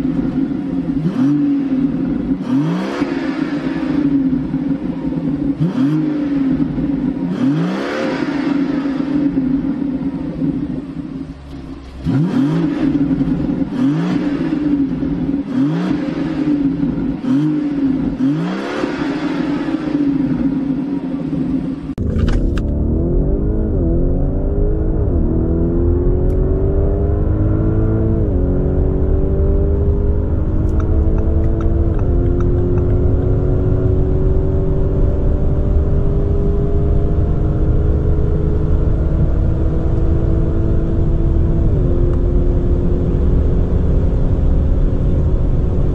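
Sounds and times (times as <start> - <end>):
car engine revving with crackle: 0.0 - 45.9
car accelerating through gears: 11.5 - 20.5, 22.3 - 44.0.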